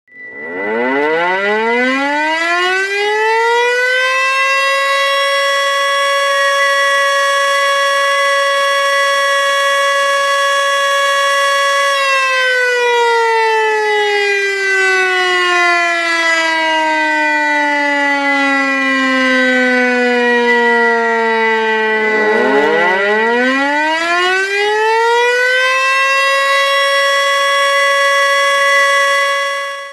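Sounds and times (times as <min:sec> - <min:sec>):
thin steady high tone: 0:00.1 - 0:01.0
tornado warning siren wailing: 0:00.1 - 0:29.9.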